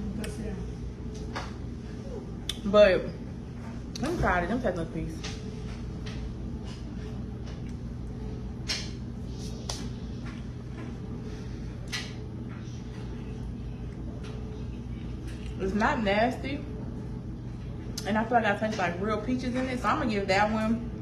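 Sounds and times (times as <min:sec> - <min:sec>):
steady low hum: 0:00.0 - 0:21.0
lip smacks: 0:02.4 - 0:02.6.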